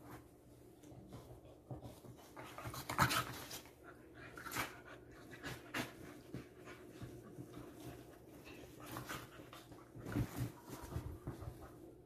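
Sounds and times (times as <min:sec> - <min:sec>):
dogs scuffling: 0:00.0 - 0:12.0.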